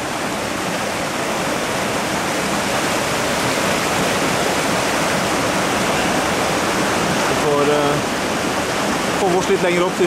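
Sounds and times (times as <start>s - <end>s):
river rushing over boulders: 0.0s - 10.0s.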